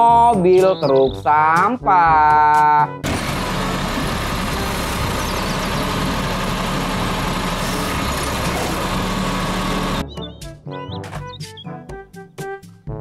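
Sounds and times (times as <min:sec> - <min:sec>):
truck arm lifting trash cart: 0:03.0 - 0:10.0
garbage truck diesel engine running: 0:03.0 - 0:10.1.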